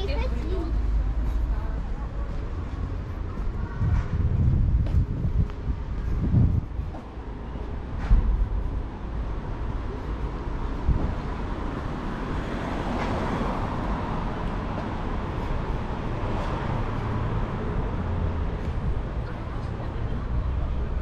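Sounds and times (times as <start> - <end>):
traffic rumble: 0.0 - 21.0
vehicle passing: 6.1 - 21.0.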